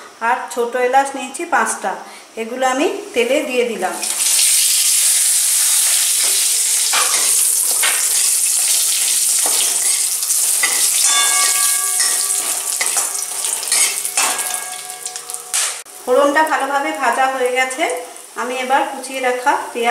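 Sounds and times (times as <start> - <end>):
spices sizzling in hot oil: 4.0 - 19.9.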